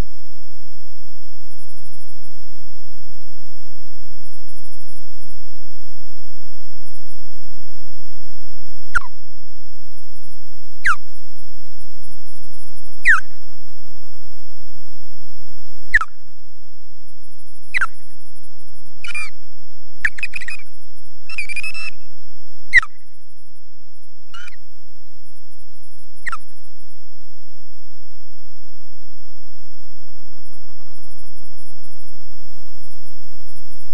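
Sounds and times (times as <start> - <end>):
osprey alarm calls: 10.8 - 11.0, 13.0 - 13.3, 15.9 - 16.1, 17.7 - 18.0, 19.0 - 19.4, 20.0 - 20.7, 21.3 - 22.0, 22.7 - 23.0, 24.3 - 24.6, 26.2 - 26.5.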